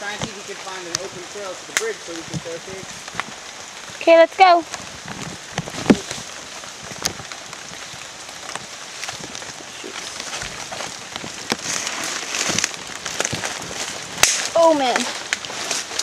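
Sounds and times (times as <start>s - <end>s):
ferns and grass rustling: 0.0s - 16.0s
sharp snaps and crackles: 0.0s - 16.0s
footsteps through leaf litter: 7.8s - 16.0s.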